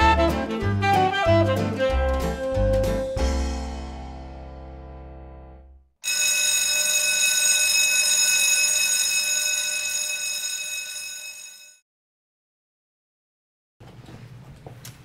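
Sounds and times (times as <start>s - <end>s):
shrill alarm ringing: 6.0s - 11.8s.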